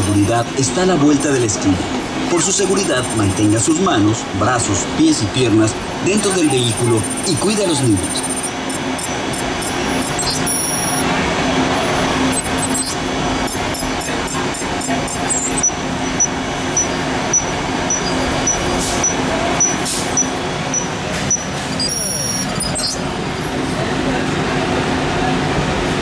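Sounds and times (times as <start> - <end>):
repeating high beep: 0.0 - 0.5, 2.4 - 3.8, 6.2 - 11.0, 12.3 - 23.0
ride vehicle rumble and hum: 0.0 - 26.0.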